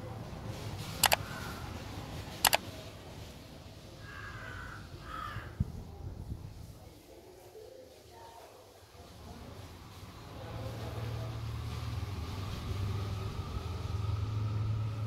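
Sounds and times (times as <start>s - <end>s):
sharp double clicks: 2.4s - 2.6s.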